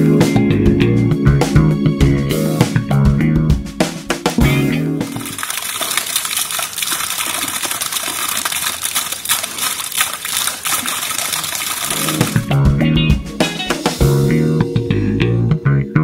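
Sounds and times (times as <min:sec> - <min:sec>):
guitar and bass music: 0:00.0 - 0:05.2, 0:11.9 - 0:16.0
fountain water splashing: 0:05.1 - 0:12.5.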